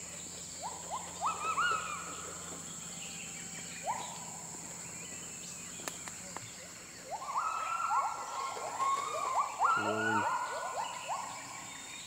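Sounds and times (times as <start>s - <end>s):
gibbons whooping: 7.1s - 11.4s.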